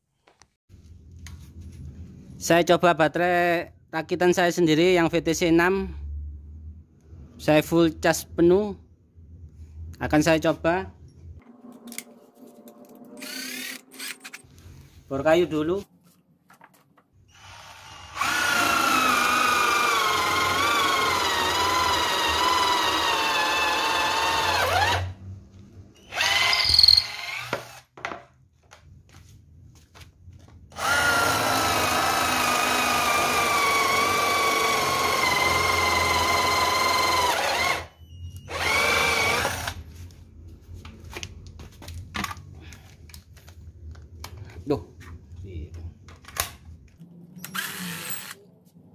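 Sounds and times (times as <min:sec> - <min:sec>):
electric drill drilling into wood: 0:13.2 - 0:14.4, 0:17.3 - 0:25.1, 0:26.1 - 0:27.9, 0:30.7 - 0:37.9, 0:38.5 - 0:39.8, 0:47.4 - 0:48.4.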